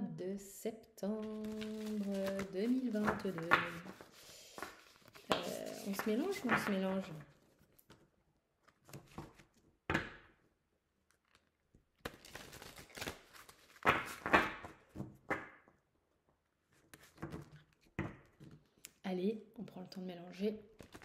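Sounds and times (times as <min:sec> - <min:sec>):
cards being shuffled: 0:01.2 - 0:09.6, 0:11.1 - 0:15.5.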